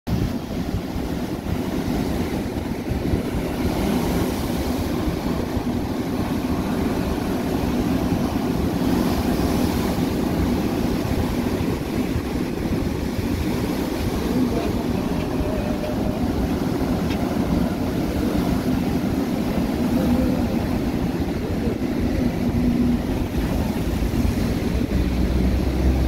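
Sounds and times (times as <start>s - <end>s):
heavy surf breaking: 0.1s - 26.0s
wind rumble on microphone: 0.1s - 26.0s.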